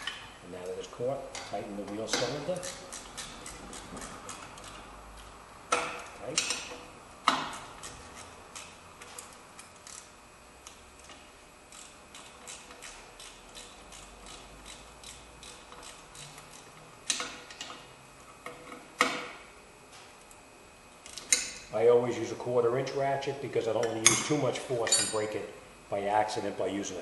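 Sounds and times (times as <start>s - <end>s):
ratchet clicking: 11.7s - 17.8s.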